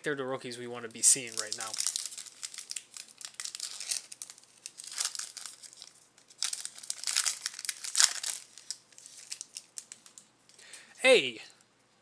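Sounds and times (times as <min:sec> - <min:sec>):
foil wrapper tearing and crinkling: 0:01.2 - 0:10.2.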